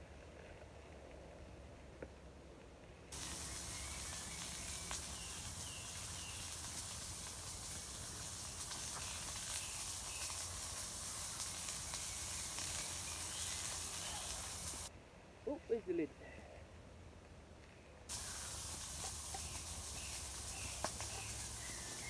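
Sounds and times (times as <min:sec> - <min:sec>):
campfire crackles: 0:00.0 - 0:14.9, 0:18.1 - 0:22.0
pan sizzling: 0:03.1 - 0:14.9, 0:18.1 - 0:22.0.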